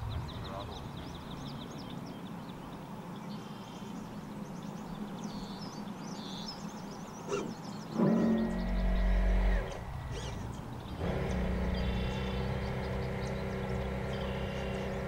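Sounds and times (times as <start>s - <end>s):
small birds chirping and trilling: 0.0s - 15.0s
steady low hum: 7.2s - 15.0s.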